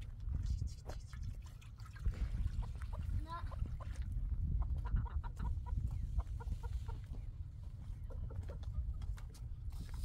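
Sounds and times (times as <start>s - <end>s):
chickens clucking: 2.6s - 9.7s.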